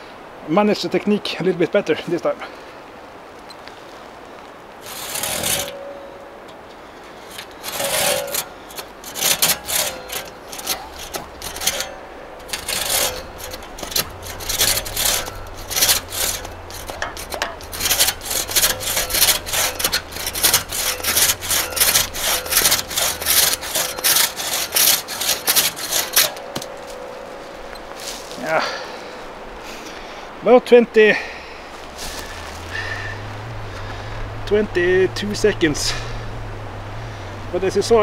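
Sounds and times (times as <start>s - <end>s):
handsaw cutting log: 4.8s - 6.0s, 7.0s - 27.3s.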